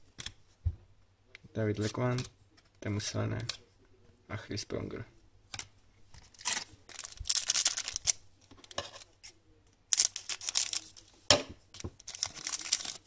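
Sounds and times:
card pack wrapper crinkling: 6.2 - 8.8, 9.9 - 11.1, 12.0 - 13.0.

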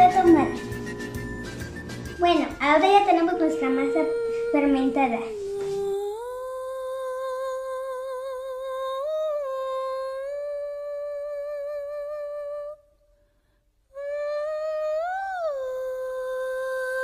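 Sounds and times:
wordless voice humming: 3.2 - 12.9.

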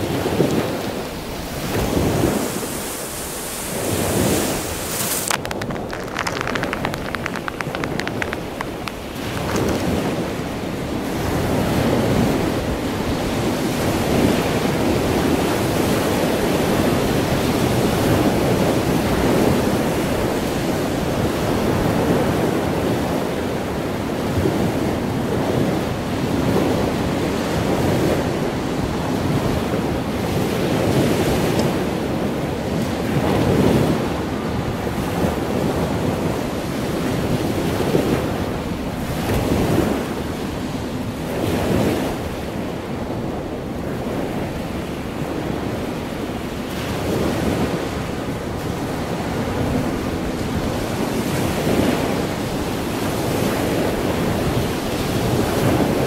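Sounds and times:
wind buffeting microphone: 0.0 - 23.2
storm surf breaking: 1.6 - 10.4.

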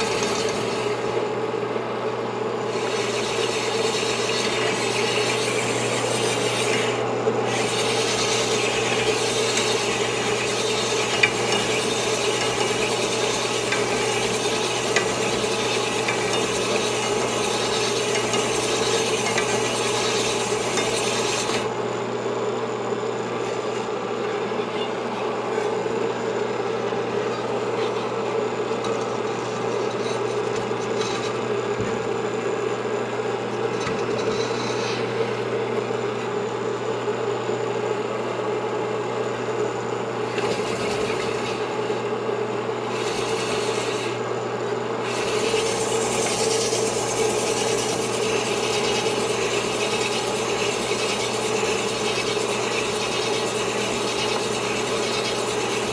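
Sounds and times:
honing stones rasping in bore: 0.0 - 1.2, 2.6 - 21.6, 42.8 - 44.2, 45.0 - 55.9
motor hum: 0.0 - 55.9.

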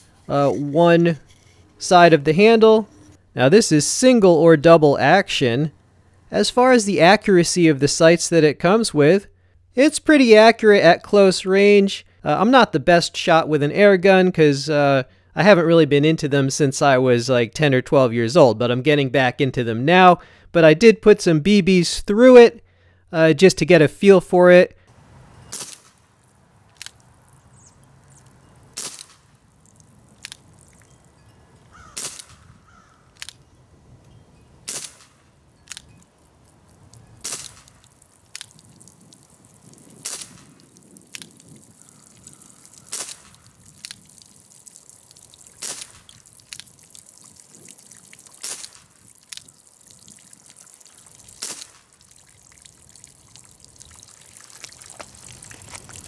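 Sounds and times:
air pistol popping: 28.8 - 29.3, 32.0 - 32.4, 34.7 - 35.9, 37.2 - 38.6.

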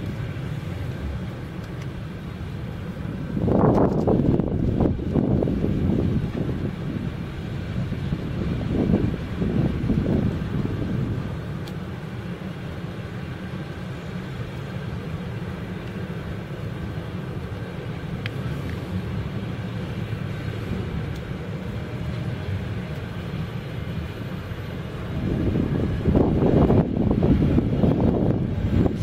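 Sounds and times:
freight train rumbling past: 0.0 - 29.0
faint rail clicks: 1.6 - 2.0.

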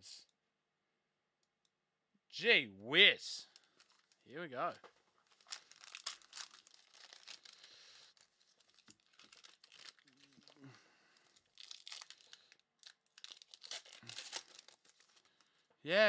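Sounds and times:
wrapper crinkling and tearing: 3.5 - 4.2, 5.2 - 15.6.

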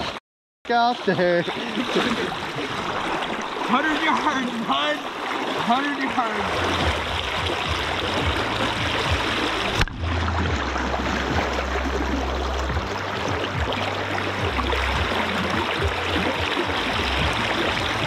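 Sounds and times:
river current rushing and gurgling: 0.0 - 18.0
water buffeting microphone: 0.0 - 18.0.

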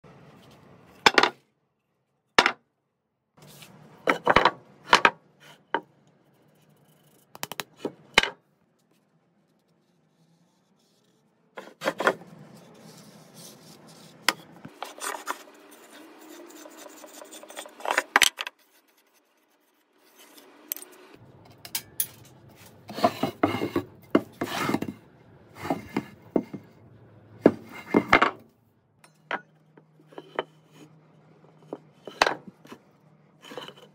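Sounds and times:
wood rubbing and scraping: 9.6 - 18.6, 22.6 - 25.0, 25.6 - 26.7.

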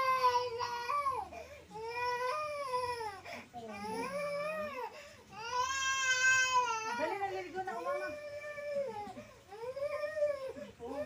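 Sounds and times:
toddler crying: 5.4 - 7.3.

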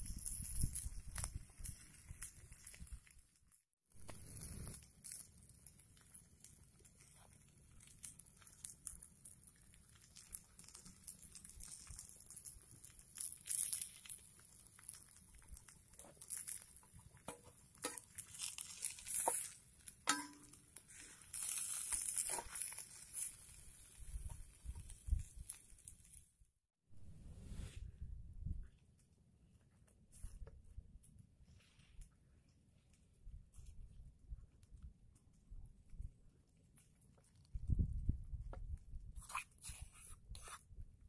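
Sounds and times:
patties frying with crackles: 0.0 - 26.4.

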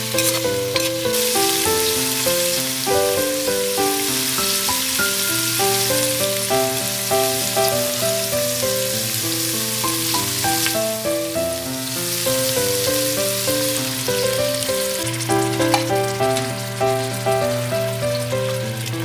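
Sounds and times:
background music: 0.0 - 19.0
vegetables sizzling in hot oil: 0.0 - 19.0.

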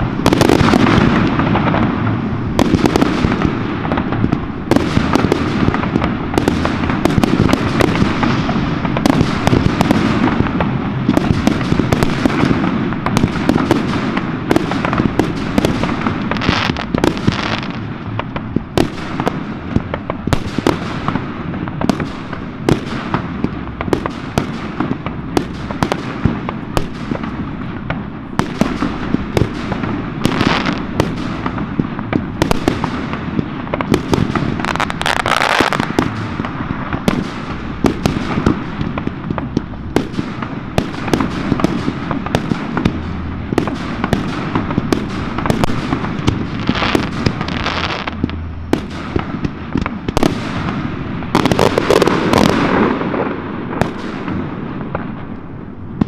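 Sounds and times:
fireworks rumble and crackle: 0.0 - 56.0
firework shells bursting: 21.8 - 55.2.

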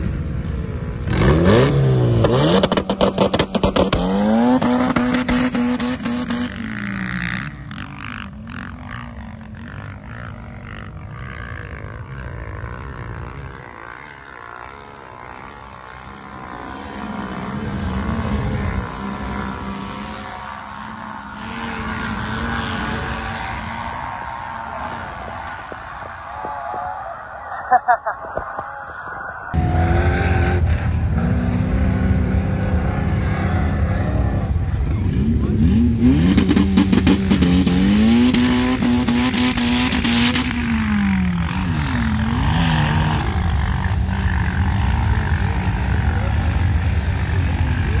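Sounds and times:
distant engine: 0.0 - 48.0
engine revving hard: 16.2 - 26.0, 29.5 - 48.0.

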